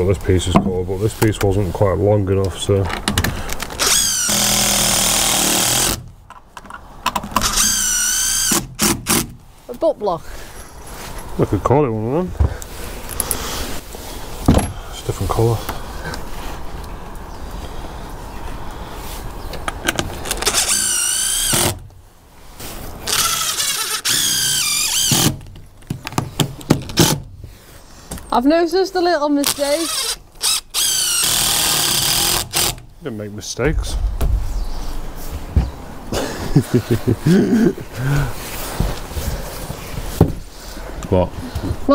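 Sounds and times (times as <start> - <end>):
cordless drill driving screws: 3.6 - 6.0, 7.4 - 9.4, 20.2 - 21.8, 23.1 - 25.4, 29.4 - 32.9.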